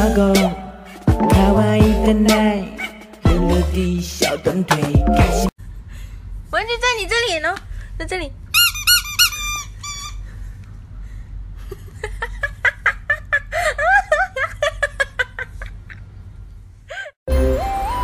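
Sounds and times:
rubber squeaky toy squeaking: 0:08.5 - 0:10.3.

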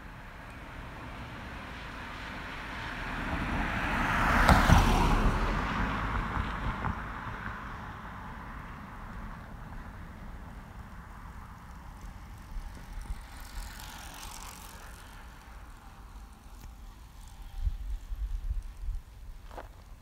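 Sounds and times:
bicycle tyre hiss: 0:10.0 - 0:20.0.

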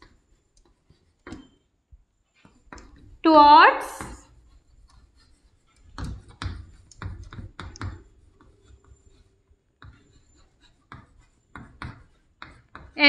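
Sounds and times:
pen strokes on paper: 0:00.0 - 0:01.3, 0:02.4 - 0:13.0
pen tapping on writing surface: 0:05.9 - 0:08.5, 0:10.9 - 0:13.0.

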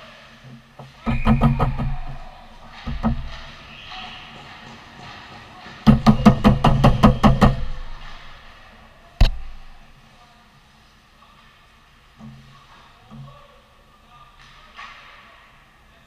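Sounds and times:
loud bangs echoing indoors: 0:01.0 - 0:10.0.

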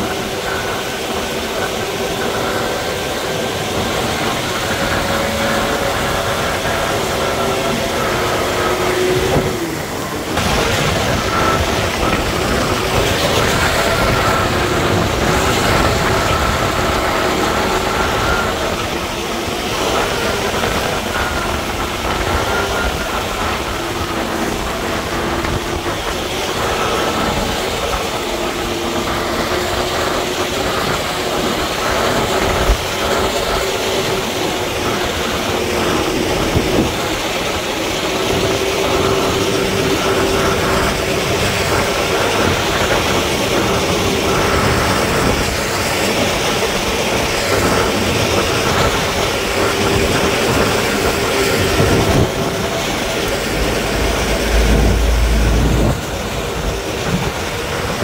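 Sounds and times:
deep machine rumble: 0:00.0 - 0:58.0
heavy machinery grinding and rumbling: 0:00.0 - 0:58.0.

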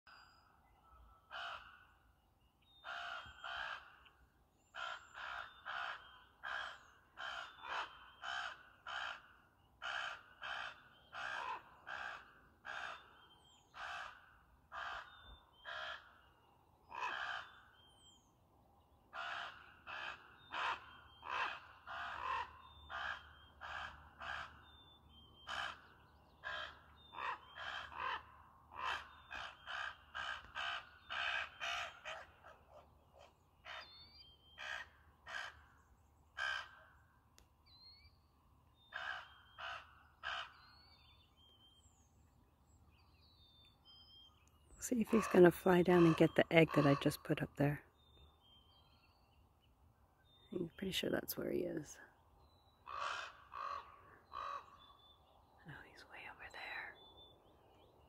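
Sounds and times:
raven calling: 0:01.3 - 0:02.0, 0:02.8 - 0:13.2, 0:13.8 - 0:16.2, 0:16.9 - 0:17.8, 0:19.1 - 0:24.7, 0:25.4 - 0:33.9, 0:34.6 - 0:37.0, 0:38.9 - 0:40.8, 0:52.7 - 0:55.0.

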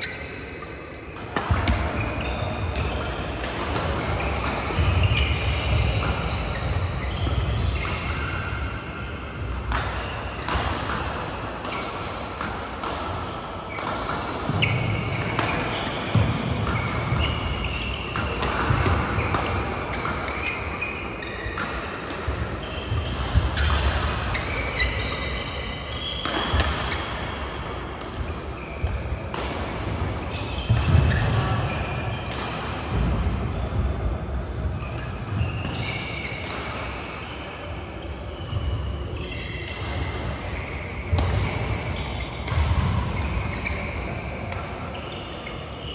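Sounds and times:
shoes squeaking on court: 0:00.0 - 0:10.9, 0:13.7 - 0:27.4, 0:28.1 - 0:32.4, 0:34.7 - 0:45.9
rackets striking shuttlecocks: 0:01.2 - 0:08.8, 0:09.4 - 0:31.5, 0:39.6 - 0:43.8.

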